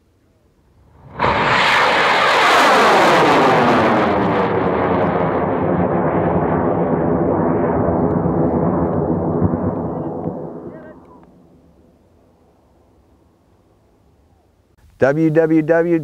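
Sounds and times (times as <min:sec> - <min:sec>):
rocket motor roaring: 0:00.8 - 0:11.1.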